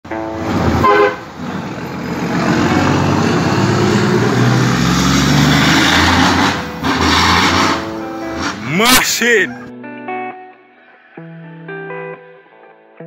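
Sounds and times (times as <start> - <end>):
truck horn: 0.6 - 1.5.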